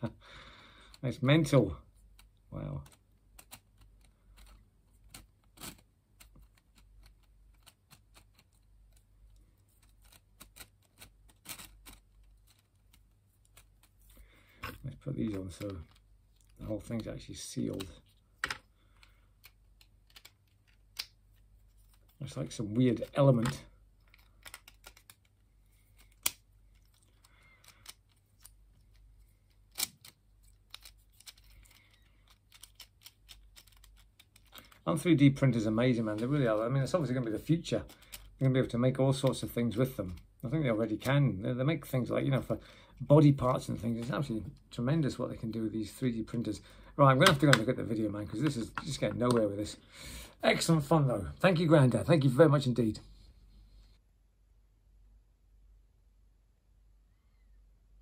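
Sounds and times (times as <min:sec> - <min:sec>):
plastic puzzle pieces clacking: 0:00.8 - 0:41.2, 0:47.1 - 0:49.7.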